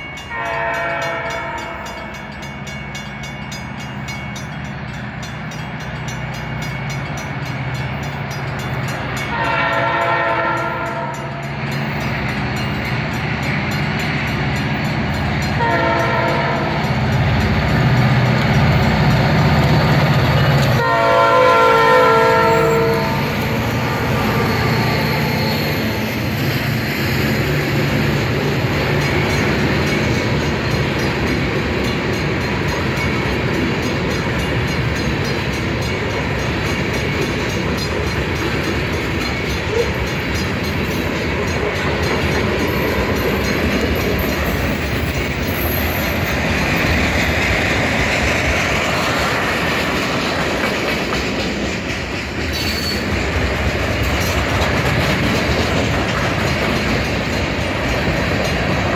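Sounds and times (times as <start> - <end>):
rumble of engine and rolling train: 0.0 - 58.9
locomotive horn blasts: 0.3 - 2.0, 9.3 - 11.4, 15.6 - 16.8, 20.8 - 23.3.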